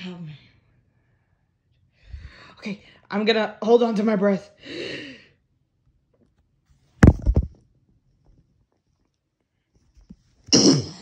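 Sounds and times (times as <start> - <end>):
person hiccuping: 10.5 - 11.0.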